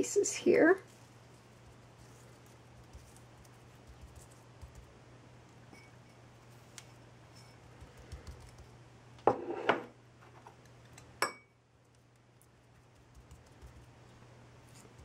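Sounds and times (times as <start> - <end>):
hands rubbing and patting meat: 0.0 - 8.8, 11.8 - 15.0.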